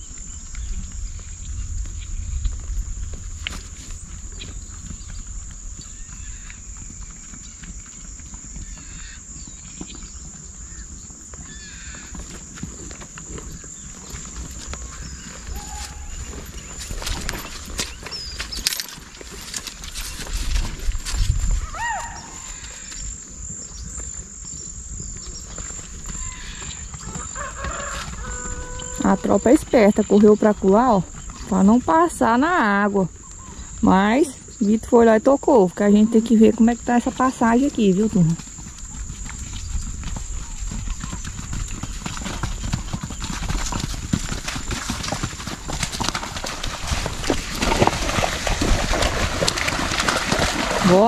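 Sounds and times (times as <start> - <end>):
horse hooves clip-clopping: 0.0 - 51.0
low rumble: 0.3 - 7.0
insects singing: 21.6 - 43.6.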